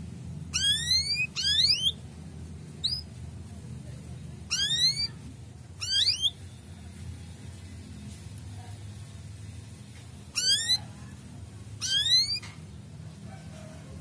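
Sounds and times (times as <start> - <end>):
canary whistled chirps: 0.5 - 2.0, 2.8 - 3.1, 4.5 - 5.2, 5.8 - 6.4, 10.4 - 10.8, 11.8 - 12.5.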